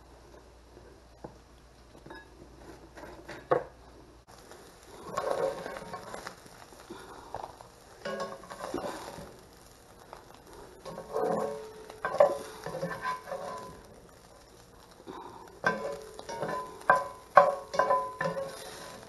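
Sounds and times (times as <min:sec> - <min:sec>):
spatula scraping cast-iron skillet: 0:04.4 - 0:19.0.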